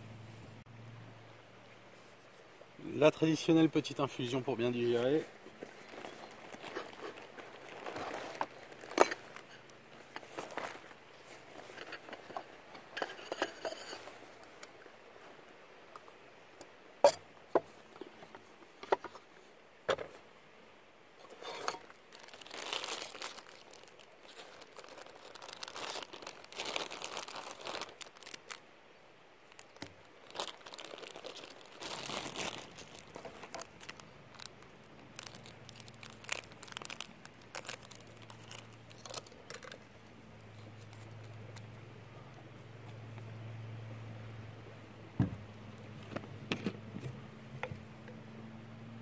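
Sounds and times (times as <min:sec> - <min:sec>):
low steady hum: 0:00.0 - 0:49.0
crinkly packaging crumpling: 0:05.0 - 0:12.4, 0:21.4 - 0:28.6, 0:29.4 - 0:39.8, 0:40.4 - 0:41.8.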